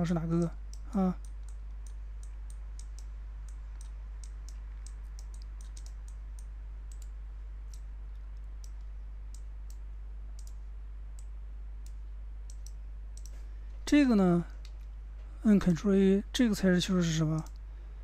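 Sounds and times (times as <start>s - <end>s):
low electrical hum: 0.0s - 18.0s
computer mouse clicking: 0.4s - 9.8s, 10.4s - 10.6s, 11.2s - 13.4s, 17.3s - 17.6s.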